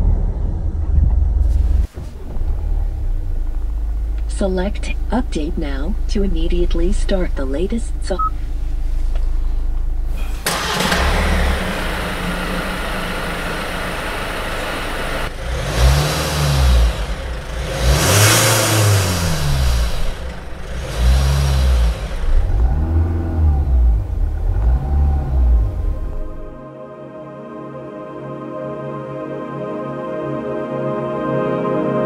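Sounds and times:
diesel engine idling and revving: 0:00.0 - 0:26.6.

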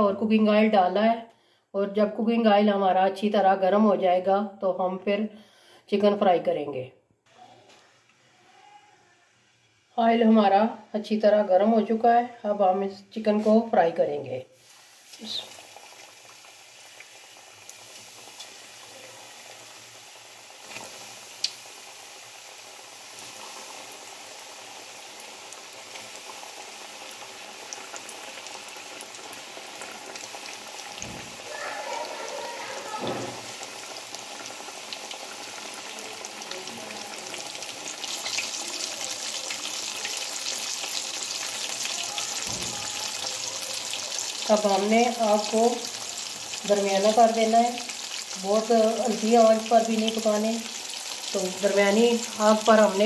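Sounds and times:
chicken deep-frying in oil: 0:14.6 - 0:53.0.

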